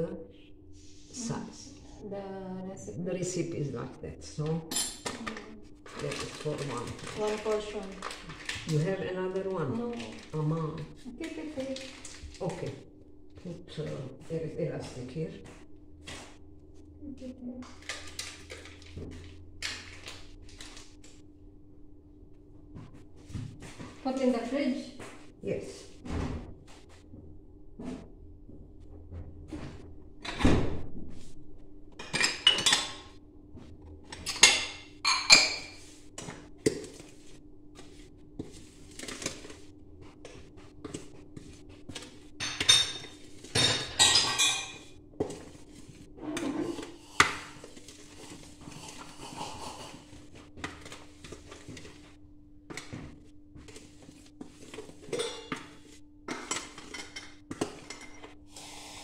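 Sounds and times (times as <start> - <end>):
dishes and cutlery clattering: 32.0 - 33.1, 42.4 - 44.9, 55.0 - 58.3.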